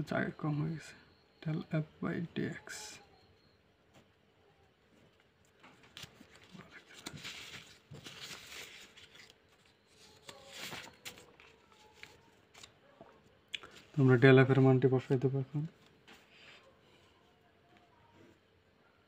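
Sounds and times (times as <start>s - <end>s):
paper sheets rustling: 5.5s - 12.8s.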